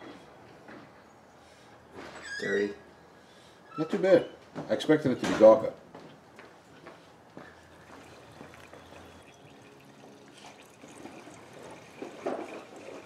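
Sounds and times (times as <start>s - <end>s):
oil trickling into plastic container: 7.6s - 13.0s.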